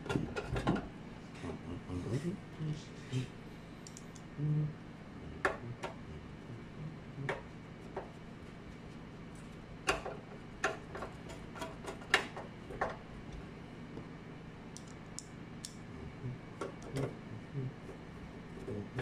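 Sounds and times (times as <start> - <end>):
faint steady hum: 0.0 - 19.0
hands and tools clicking and tapping: 9.8 - 13.0, 14.7 - 15.8, 16.6 - 17.2.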